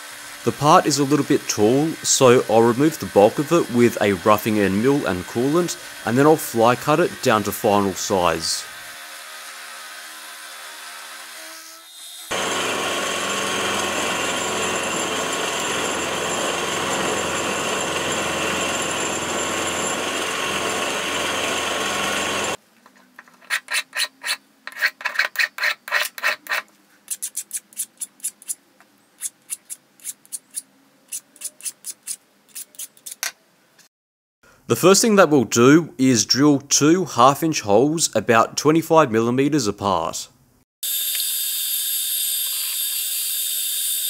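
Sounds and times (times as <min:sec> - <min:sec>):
milling machine cutting steel: 0:00.0 - 0:09.0, 0:12.3 - 0:22.6.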